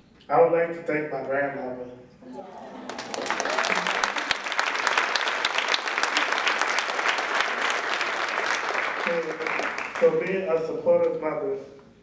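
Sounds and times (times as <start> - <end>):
audience applauding: 2.8 - 10.3.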